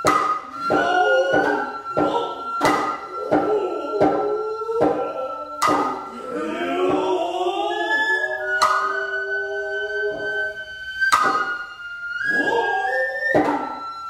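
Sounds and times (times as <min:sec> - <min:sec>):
hand drum strokes: 0:00.0 - 0:06.1, 0:08.4 - 0:10.4, 0:12.3 - 0:13.8
bamboo flute high note: 0:00.0 - 0:14.0
drummers' long sliding calls: 0:00.1 - 0:14.0.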